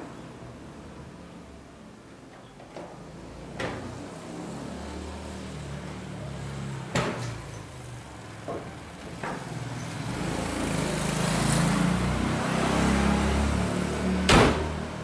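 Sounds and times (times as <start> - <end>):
sharp knocks and clunks: 6.9 - 7.4, 8.4 - 9.5, 14.3 - 14.8.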